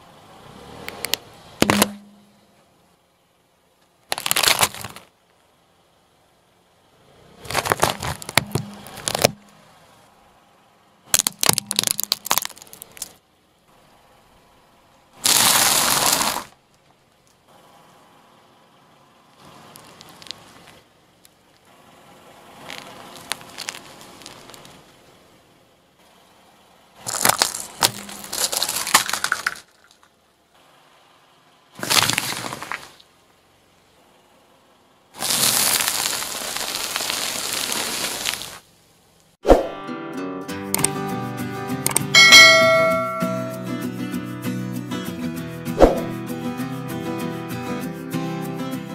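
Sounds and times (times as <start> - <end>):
apple being squashed: 1.6 - 2.1, 4.1 - 5.1, 7.4 - 9.4, 11.1 - 13.2, 15.2 - 16.5, 27.1 - 29.7, 31.8 - 33.0, 35.2 - 38.6
tyre crushing objects: 1.6 - 2.1, 4.1 - 5.1, 7.4 - 9.4, 11.2 - 13.1, 15.2 - 16.6, 27.1 - 29.7, 31.8 - 33.0.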